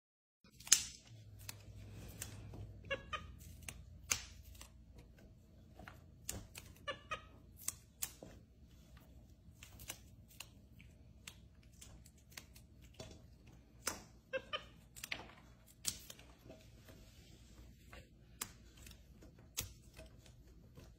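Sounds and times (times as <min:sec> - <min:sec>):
green beans snapping: 0:00.5 - 0:04.9, 0:07.5 - 0:08.3, 0:09.5 - 0:14.1, 0:14.9 - 0:16.3
monkey squeaky calls: 0:02.8 - 0:03.6, 0:06.6 - 0:07.5, 0:14.3 - 0:14.8.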